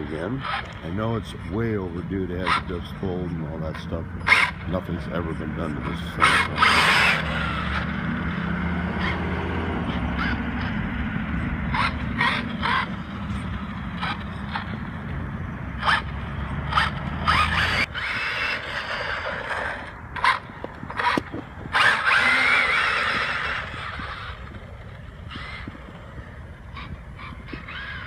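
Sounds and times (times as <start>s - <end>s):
electric motor whining: 0.0s - 28.0s
tyres scrubbing on asphalt: 2.1s - 10.8s, 15.8s - 28.0s.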